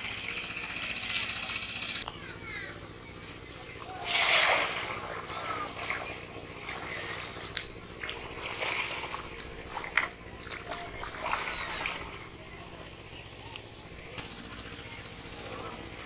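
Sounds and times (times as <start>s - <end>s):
water splashing and sloshing: 0.0s - 2.0s, 3.2s - 16.0s
fish thrashing in water: 3.7s - 13.4s.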